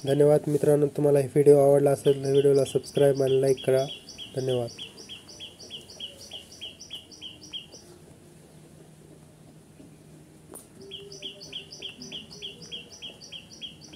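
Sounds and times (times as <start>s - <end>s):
small bird chirping: 1.9s - 8.0s, 10.7s - 13.9s.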